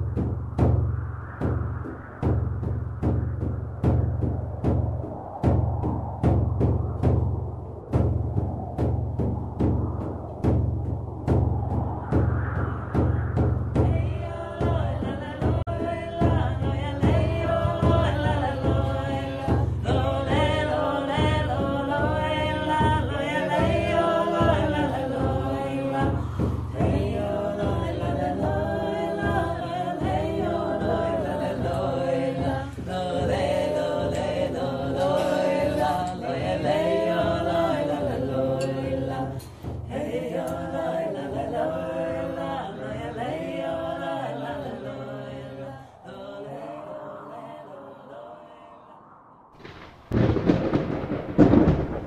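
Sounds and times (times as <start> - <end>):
steady low drone: 0.0 - 21.9
voices singing a chant: 12.7 - 49.3.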